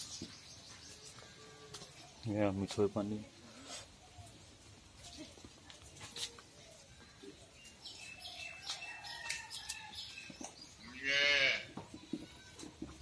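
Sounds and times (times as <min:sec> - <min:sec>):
goat bleating: 0:10.9 - 0:11.8.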